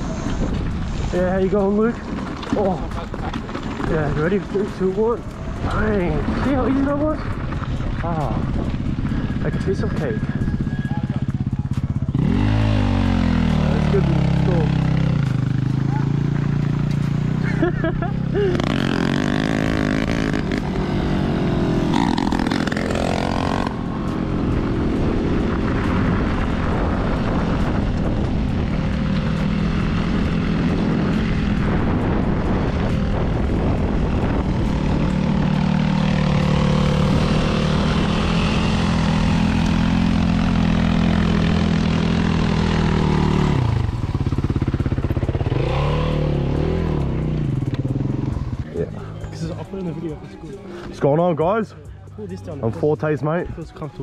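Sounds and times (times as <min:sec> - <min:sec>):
wind rushing over microphone: 0:00.0 - 0:11.5, 0:18.3 - 0:48.7
dirt bike engine running: 0:00.0 - 0:53.4.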